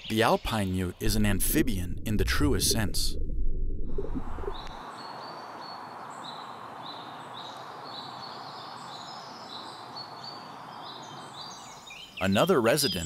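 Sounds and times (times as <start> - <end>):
forest ambience hiss: 4.7 - 12.8.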